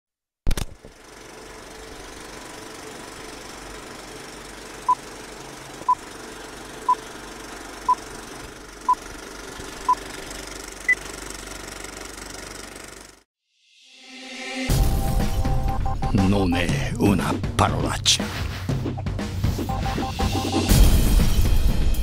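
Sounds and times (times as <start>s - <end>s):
film projector clatter: 0.5s - 13.3s.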